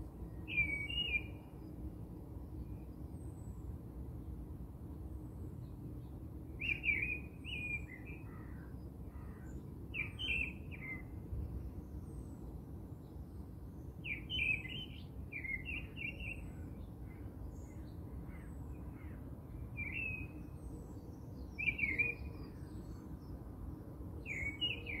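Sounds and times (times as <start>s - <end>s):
low steady background noise: 0.0s - 25.0s.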